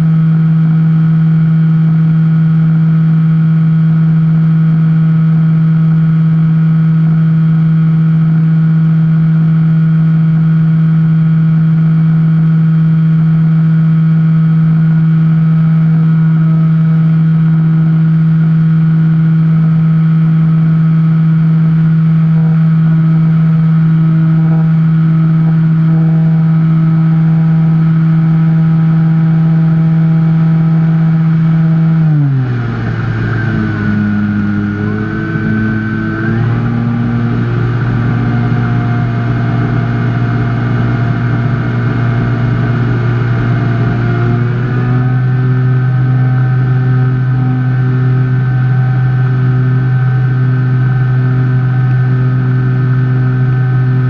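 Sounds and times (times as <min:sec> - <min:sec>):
electric motor and propeller humming: 0:22.3 - 0:54.0.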